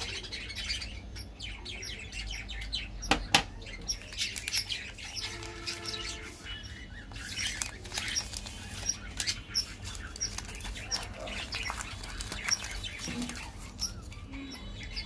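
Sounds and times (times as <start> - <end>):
birds chirping: 0.0 - 15.0
wrapper crinkling as torn open: 7.2 - 13.8.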